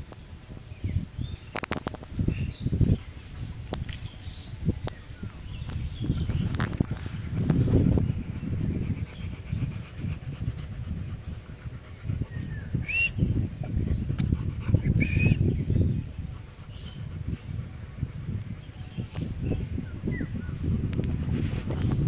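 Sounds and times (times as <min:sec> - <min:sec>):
dog panting: 0:06.1 - 0:19.7.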